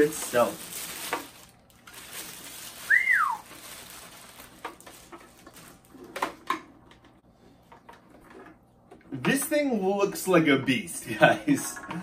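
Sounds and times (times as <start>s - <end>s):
packaging rustling and knocks: 0.0s - 6.5s
rising and gliding whistle: 2.9s - 3.4s.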